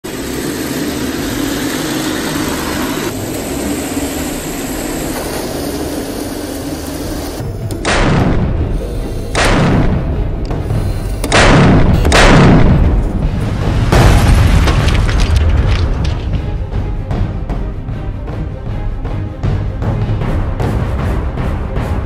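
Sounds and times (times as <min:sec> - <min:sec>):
cannon booms: 0:11.2 - 0:13.0.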